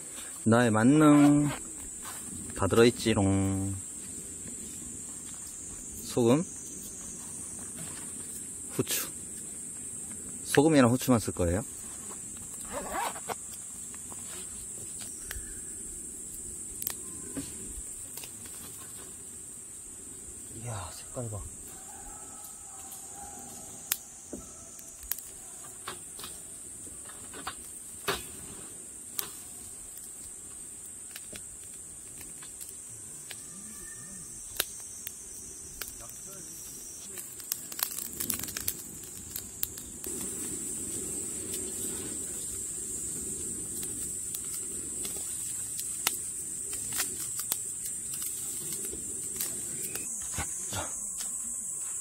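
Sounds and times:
insect chorus: 0.0s - 52.0s
pops and crackles: 12.1s - 15.5s, 23.8s - 26.4s, 29.1s - 33.5s, 34.4s - 50.6s
steaks sizzling on grill: 28.3s - 50.0s.

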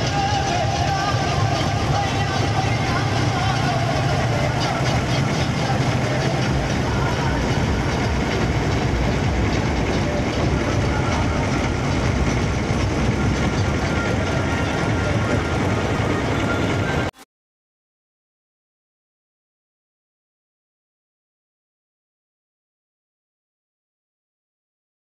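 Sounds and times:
boat engine running: 0.0s - 17.2s
crowd voices: 0.0s - 17.2s.

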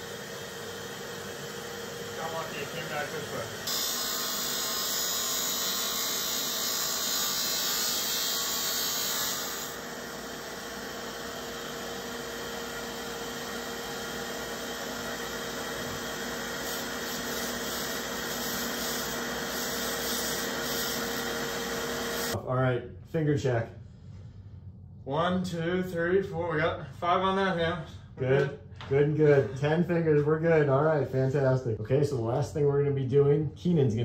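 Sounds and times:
dust extractor: 0.0s - 22.4s
cutter motor whining: 2.2s - 16.6s.

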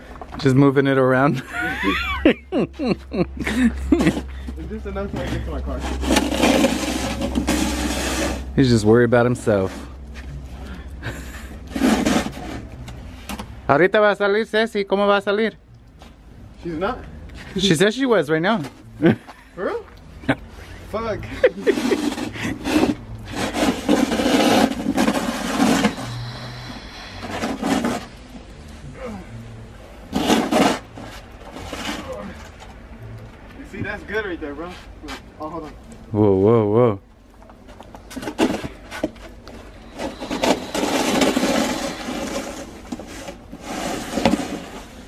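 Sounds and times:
snow shovel scraping: 5.4s - 8.5s, 11.7s - 12.7s, 21.4s - 28.1s, 30.1s - 32.1s, 39.9s - 45.0s.

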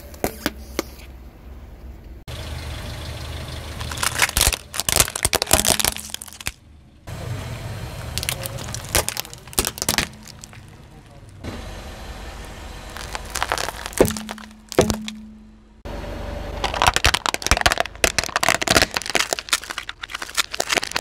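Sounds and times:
car engine idling: 1.2s - 21.0s
plastic toys cracking under tyre: 3.8s - 6.6s, 8.0s - 11.4s, 12.9s - 15.3s, 16.6s - 21.0s.

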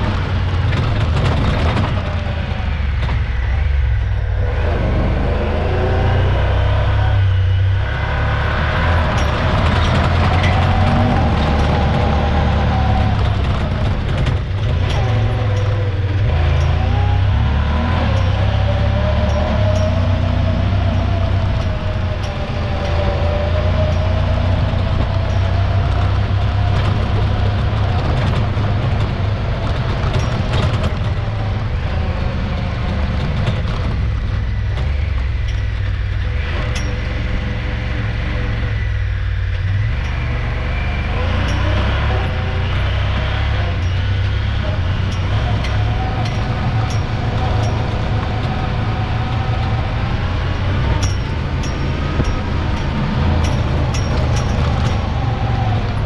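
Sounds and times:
vehicle engine droning under load: 0.0s - 56.0s
wavering engine whine: 0.0s - 56.0s.

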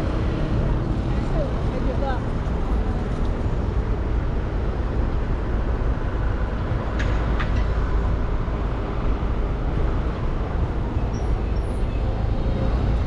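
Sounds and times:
low rumble of traffic: 0.0s - 13.0s.

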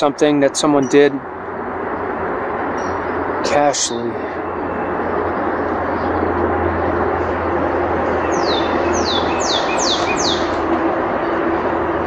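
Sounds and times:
road traffic rushing: 0.0s - 12.0s
low hum: 0.8s - 12.0s
songbird calling: 8.0s - 10.7s.

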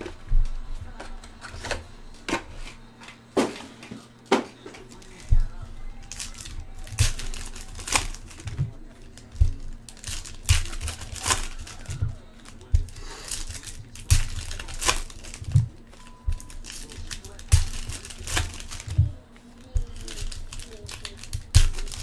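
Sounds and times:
foil packs tearing and crinkling: 4.8s - 22.0s
low handling thumps: 5.2s - 7.8s.

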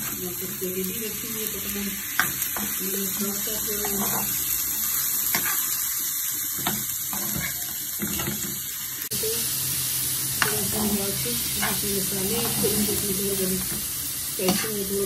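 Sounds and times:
chicken sizzling in oil: 0.0s - 15.0s
metal spoon scraping pan: 3.8s - 4.4s, 10.4s - 13.7s.

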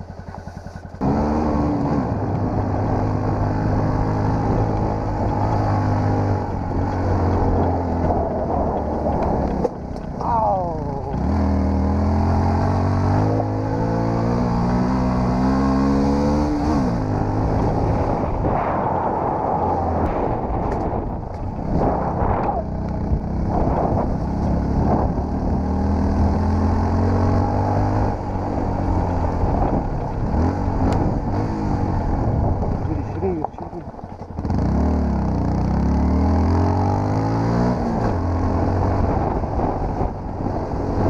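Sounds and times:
motorcycle engine revving: 0.0s - 41.0s
knocks and rattles over bumps: 4.4s - 10.3s, 32.4s - 34.8s.

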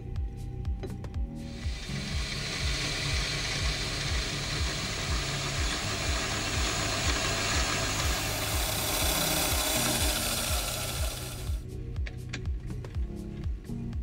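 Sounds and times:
background music with low beat: 0.0s - 14.0s
end mill cutting metal: 1.5s - 11.6s.

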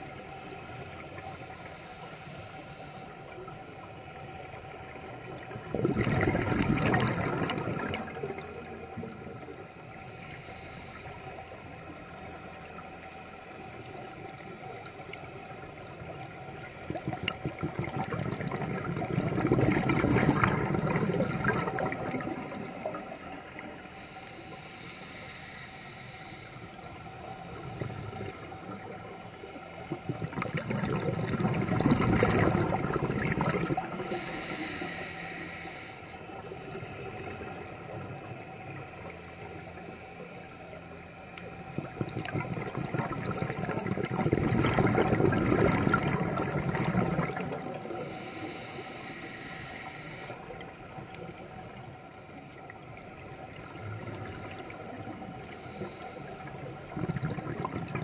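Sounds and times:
faint steady hum: 0.0s - 58.0s
underwater regulator bubbling: 5.6s - 8.4s, 16.8s - 23.2s, 29.8s - 35.0s, 41.7s - 50.4s, 54.0s - 58.0s.

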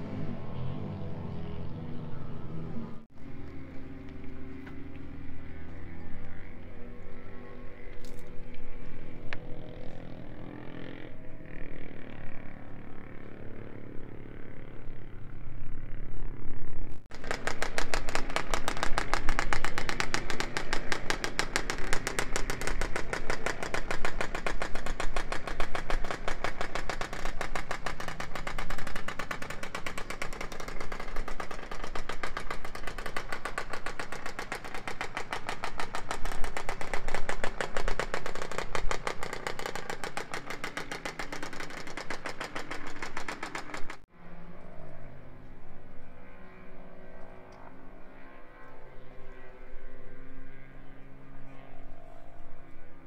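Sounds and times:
two-stroke motorcycle engine running: 0.0s - 44.1s.

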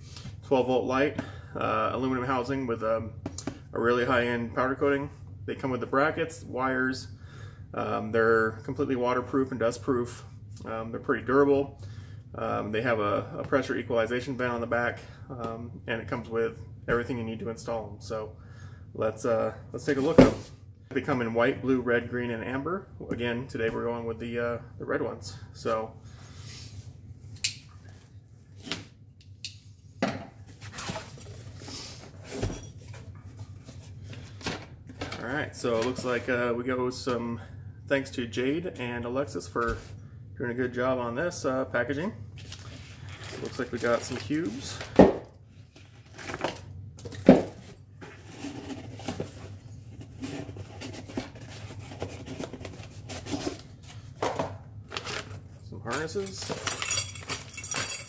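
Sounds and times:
cardboard rustling and scraping: 45.6s - 55.4s.

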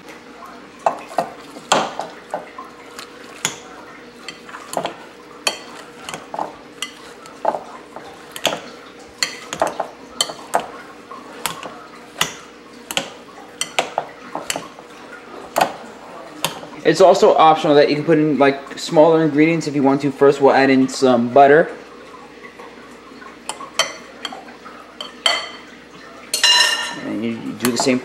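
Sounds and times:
potatoes squashing: 0.8s - 17.0s
potato masher clinking on glass bowl: 4.2s - 14.7s.

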